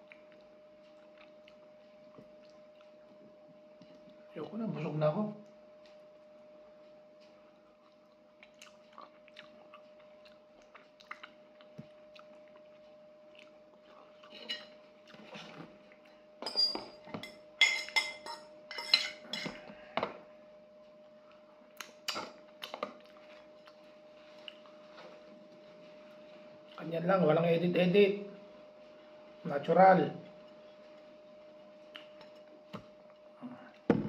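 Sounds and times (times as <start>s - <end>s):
close-up chewing: 0.0s - 4.2s, 7.5s - 15.3s, 21.2s - 24.9s
faint steady hum: 0.0s - 34.0s
ceramic plate clinking: 16.4s - 19.6s.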